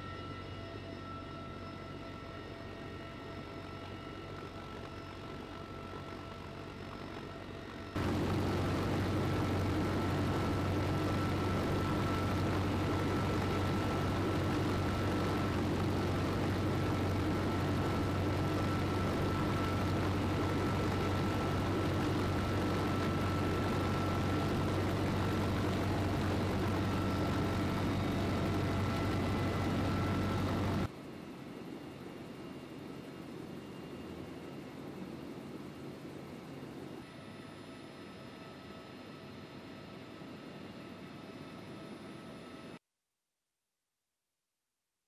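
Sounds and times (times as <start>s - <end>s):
helicopter rotor and engine drone: 0.0s - 42.8s
high whine: 7.1s - 30.9s
rushing wind: 8.0s - 30.9s.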